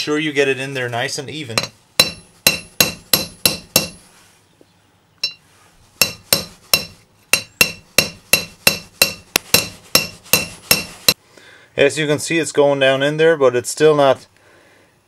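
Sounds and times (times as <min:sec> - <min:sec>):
hammer blows on metal tube: 0:01.6 - 0:04.0, 0:06.0 - 0:11.2.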